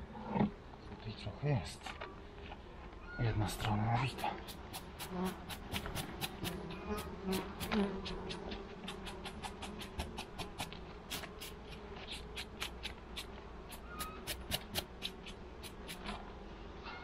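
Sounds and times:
bees humming: 3.2s - 17.0s
brush sweeping strokes: 7.3s - 16.2s.

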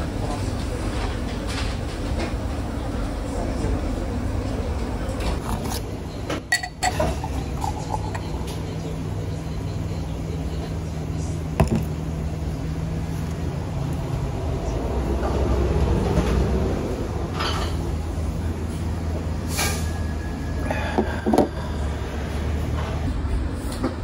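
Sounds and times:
steady low hum: 0.0s - 23.8s
beer pouring into a glass: 6.6s - 8.8s
bottle knocking on wooden table: 11.6s - 11.9s.

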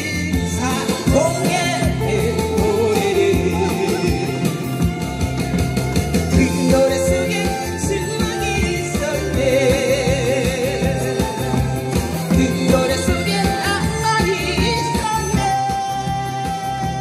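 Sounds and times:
person singing: 0.0s - 5.6s, 6.3s - 17.0s
amplified backing track with beat: 0.0s - 17.0s
harmonicas playing a pop melody: 0.0s - 17.0s.

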